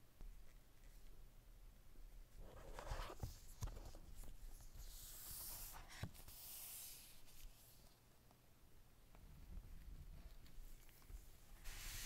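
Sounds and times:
cardboard rubbing and sliding: 4.8s - 7.8s, 11.6s - 12.0s.

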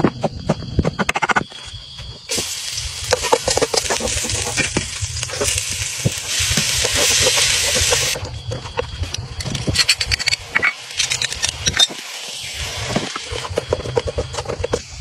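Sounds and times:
oil sizzling in wok: 2.3s - 8.2s, 10.7s - 14.0s.

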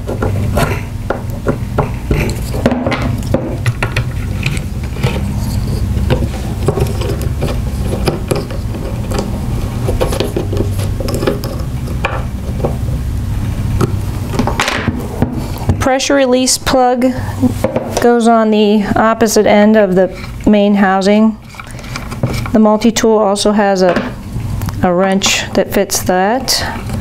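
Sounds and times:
tool clicks knocks and scrapes: 0.0s - 12.8s
steady low hum: 0.0s - 27.0s.

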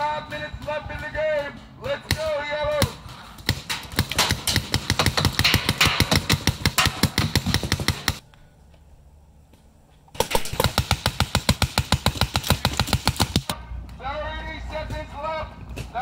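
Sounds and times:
paintball marker rapid firing: 2.1s - 8.2s, 10.2s - 13.6s.

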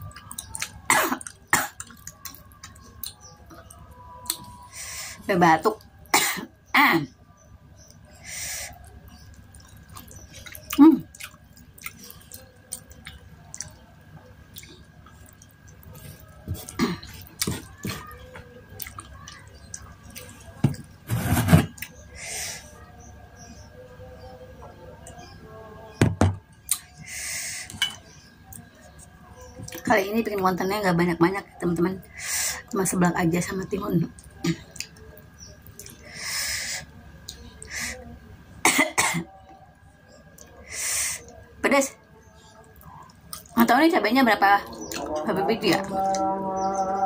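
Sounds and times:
wet chewing and mouth smacks: 0.0s - 4.5s, 8.8s - 20.5s, 42.7s - 43.6s
woman coughing: 0.9s - 1.8s, 6.1s - 7.1s, 38.6s - 39.3s.

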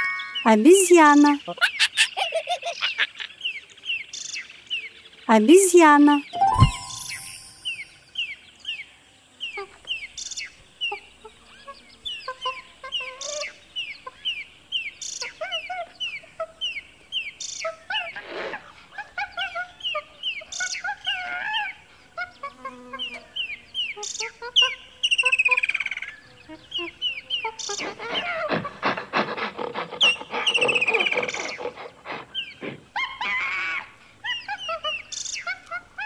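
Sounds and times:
jungle birdsong: 0.2s - 36.0s
lower squeaky monkey calls: 29.8s - 36.0s
monkey chirping calls: 29.8s - 36.0s.

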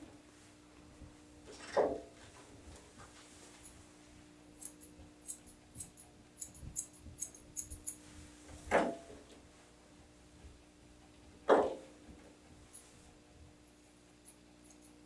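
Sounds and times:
scissors snipping dog hair: 4.6s - 8.0s, 14.2s - 14.9s.

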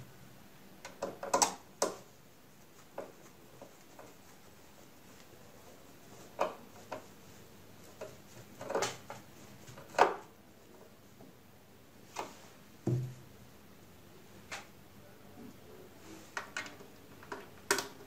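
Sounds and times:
dull thump: 12.8s - 13.2s.

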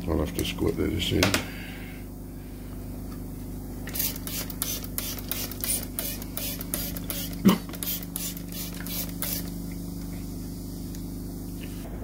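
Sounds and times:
steady low hum: 0.0s - 12.0s
squeeze bottle squirting spurts: 3.9s - 9.6s.

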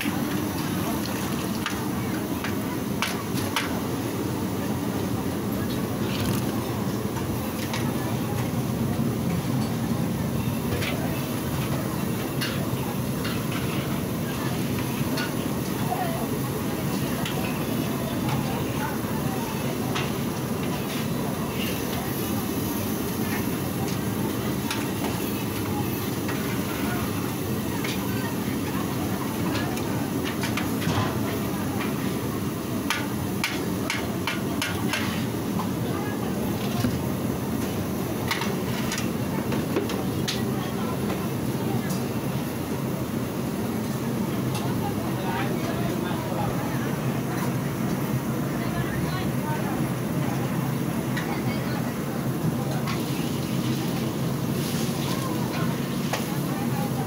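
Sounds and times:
gas burner roaring: 0.0s - 57.0s.

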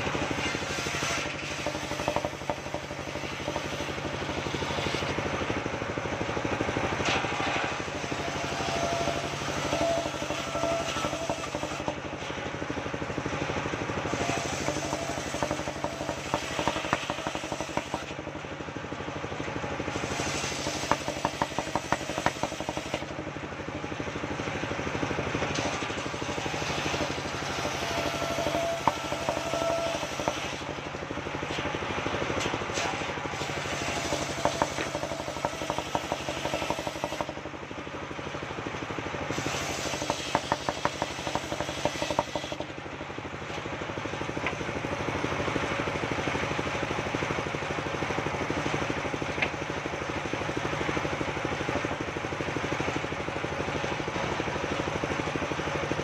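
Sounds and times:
circular saw cutting wood: 0.0s - 42.8s
engine running: 0.0s - 56.0s.

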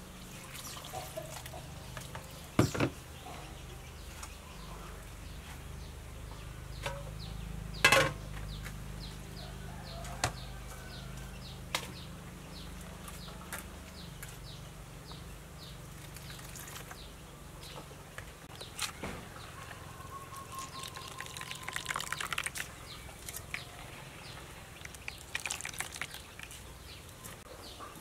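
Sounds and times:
hands squeezing wet coconut: 0.3s - 2.5s, 15.9s - 17.0s, 20.3s - 27.4s.

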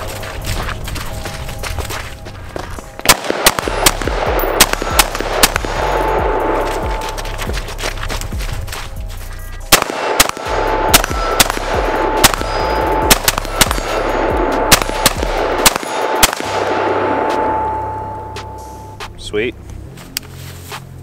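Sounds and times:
background music: 0.0s - 21.0s
rifle shots: 3.0s - 7.1s, 9.7s - 18.0s.

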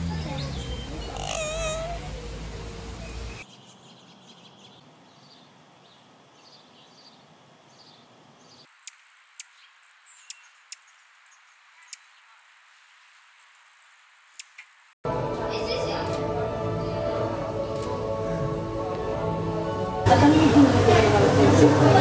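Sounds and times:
faint high chirps: 0.0s - 3.8s
background noise: 0.0s - 20.1s
parrot trilling call: 0.4s - 3.4s
sharp ticks: 8.7s - 12.3s, 13.1s - 14.9s.

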